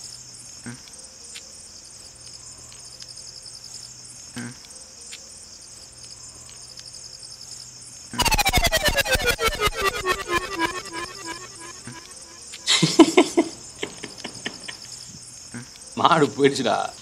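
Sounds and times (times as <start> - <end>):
field crickets chirping: 0.0 - 8.2, 12.0 - 17.0
music with fast repeated notes: 8.2 - 12.5.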